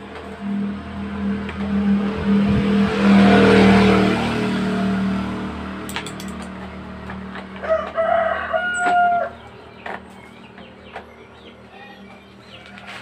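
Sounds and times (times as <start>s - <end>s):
rooster crowing: 7.5s - 9.5s.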